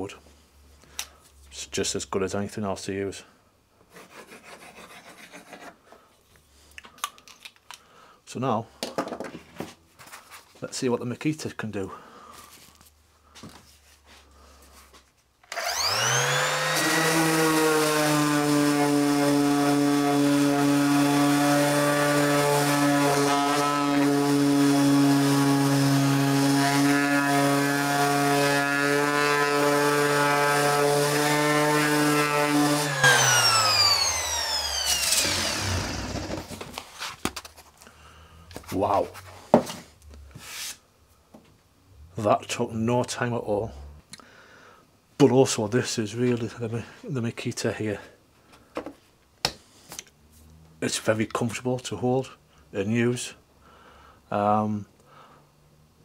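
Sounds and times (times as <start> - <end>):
orbital sander whining: 15.5 - 36.7.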